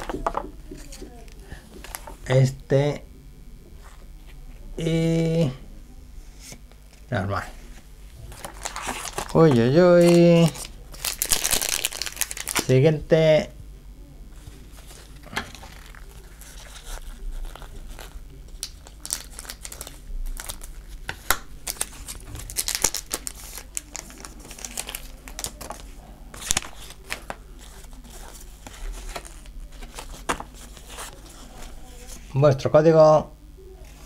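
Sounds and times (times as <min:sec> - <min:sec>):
foil wrapper crinkling and tearing: 0:08.3 - 0:12.7, 0:14.7 - 0:31.8
cards being handled: 0:14.4 - 0:32.3.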